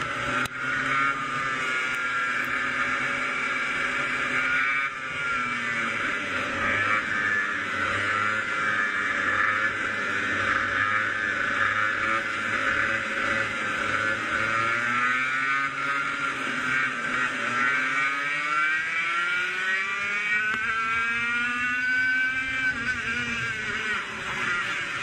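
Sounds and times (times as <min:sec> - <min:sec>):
kart engine revving: 0:00.0 - 0:25.0.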